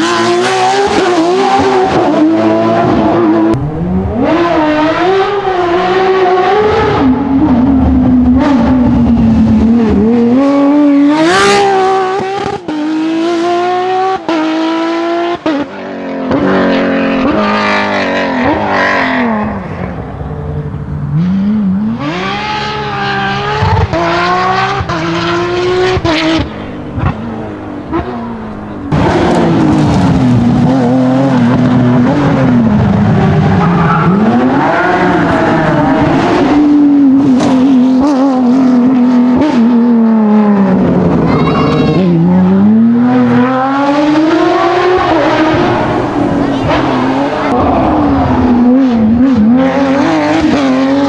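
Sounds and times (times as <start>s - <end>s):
car engine at full throttle: 0.0s - 51.0s.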